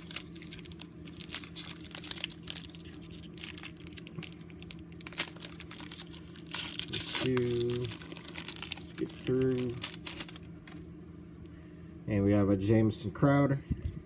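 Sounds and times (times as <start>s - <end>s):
foil wrapper crinkling: 0.0s - 10.9s.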